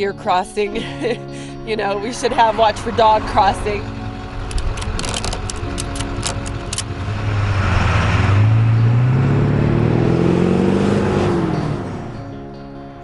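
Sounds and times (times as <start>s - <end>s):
truck engine revving: 1.0s - 12.4s
ratchet strap clicking: 4.5s - 6.9s.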